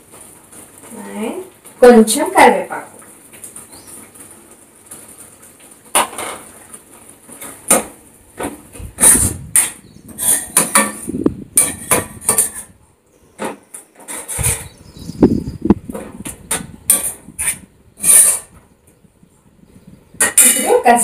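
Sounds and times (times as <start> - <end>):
metal spoon scraping a pan: 7.3 - 12.8, 13.4 - 14.8, 16.2 - 18.6, 20.2 - 20.8.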